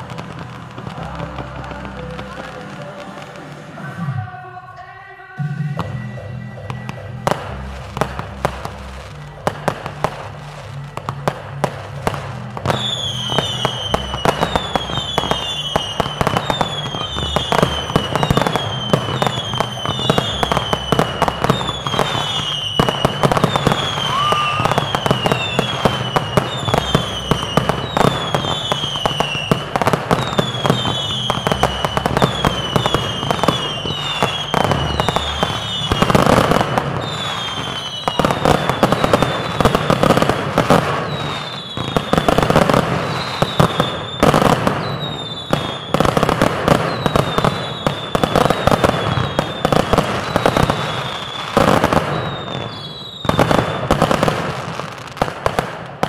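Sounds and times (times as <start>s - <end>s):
firework bangs and crackles: 0.0s - 4.6s, 5.4s - 56.0s
whistling firework shots: 12.6s - 56.0s.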